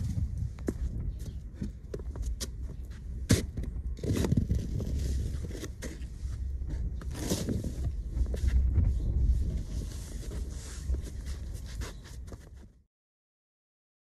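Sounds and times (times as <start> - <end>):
snow shovel scraping snow: 7.1 - 7.9, 9.6 - 12.0.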